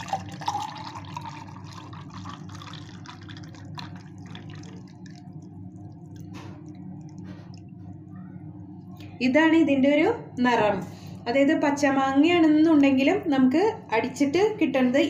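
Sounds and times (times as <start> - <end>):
juice pouring into a bowl: 0.0 - 7.8
drips: 0.0 - 8.1.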